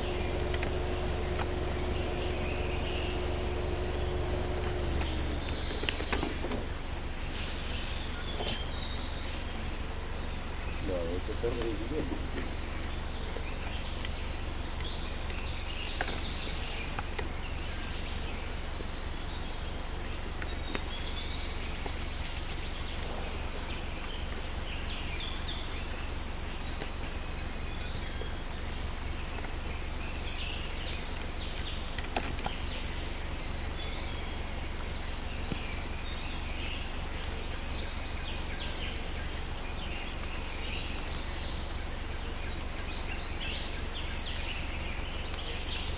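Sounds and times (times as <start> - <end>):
bird chirps: 0.0 - 6.7, 7.6 - 9.7
steady low rumble: 0.0 - 18.5
high insect drone: 0.0 - 45.9.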